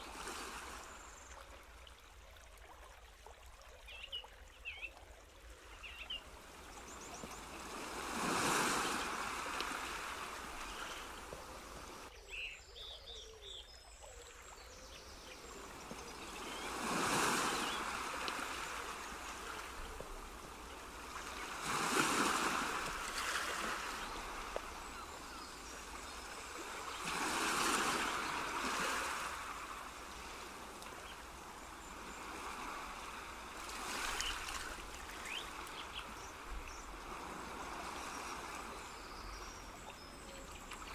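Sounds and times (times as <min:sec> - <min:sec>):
soft rushing surf noise: 0:06.3 - 0:12.1, 0:15.3 - 0:39.8.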